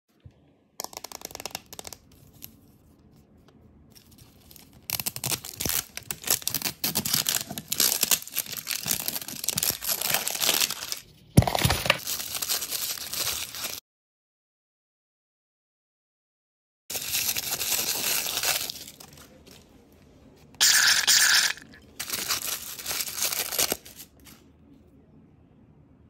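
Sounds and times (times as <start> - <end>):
wrapper tearing and crinkling: 4.0 - 13.8, 16.9 - 19.6, 20.6 - 24.4.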